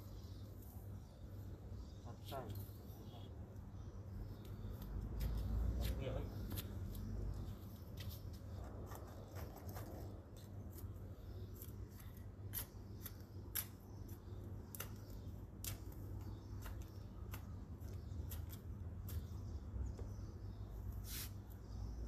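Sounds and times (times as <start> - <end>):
garden tool scraping stony soil: 21.0 - 21.4.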